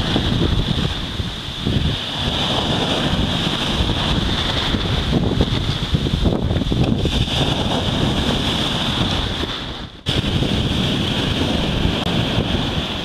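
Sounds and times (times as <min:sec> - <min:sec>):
surf breaking on shore: 0:00.0 - 0:13.0
wave bursting into spray: 0:00.0 - 0:13.0
wind buffeting microphone: 0:00.0 - 0:13.0.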